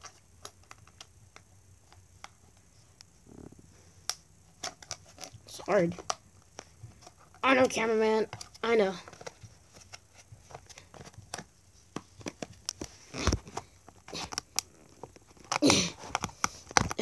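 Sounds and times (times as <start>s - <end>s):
plastic lid clicking and crackling: 10.5s - 17.0s.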